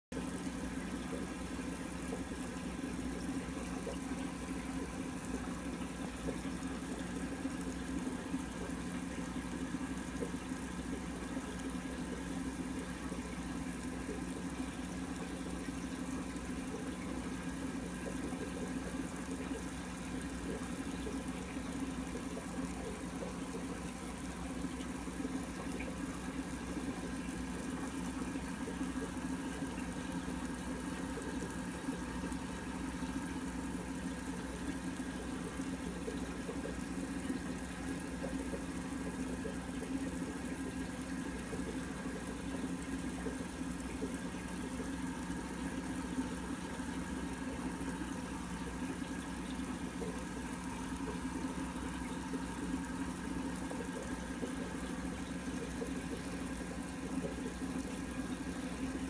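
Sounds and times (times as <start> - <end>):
aquarium pump humming: 0.0 - 59.0.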